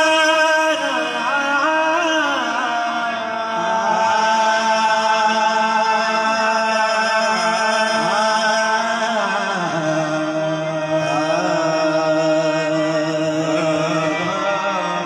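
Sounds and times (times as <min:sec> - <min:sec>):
qawwali singing: 0:00.0 - 0:15.0.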